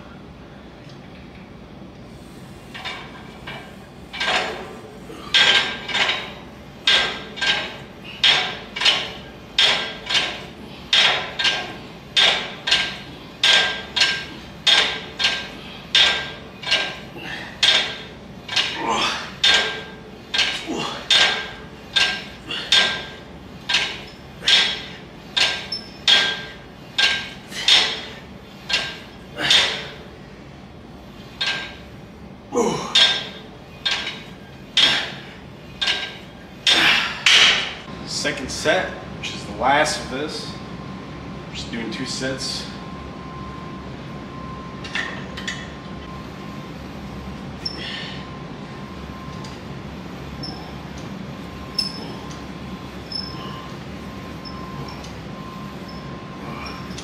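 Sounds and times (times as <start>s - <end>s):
weight plates clanking: 2.7s - 30.0s, 33.0s - 37.8s.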